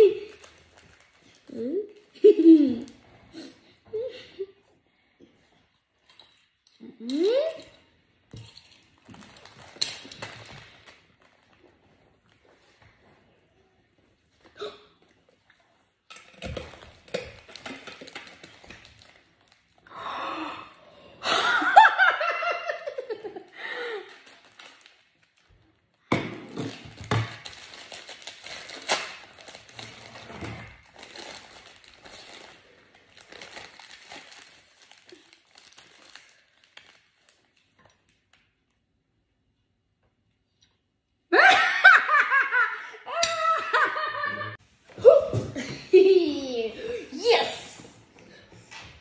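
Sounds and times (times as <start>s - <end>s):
plastic snack packet crinkling: 0.0s - 2.2s, 8.8s - 12.4s, 16.4s - 19.9s, 23.5s - 25.7s, 26.6s - 38.5s.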